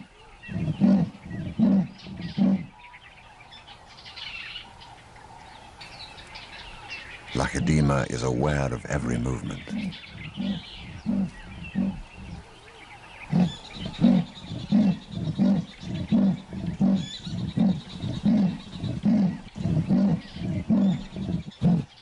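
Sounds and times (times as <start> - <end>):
leopard rasping grunts: 0.0 - 2.8, 7.4 - 12.5, 13.3 - 22.0.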